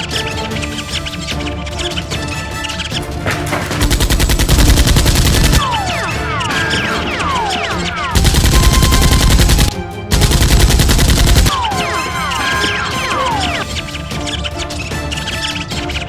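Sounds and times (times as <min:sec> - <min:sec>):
automatic gunfire effects: 0:03.5 - 0:11.7
falling whistles: 0:05.6 - 0:09.7, 0:11.4 - 0:16.0.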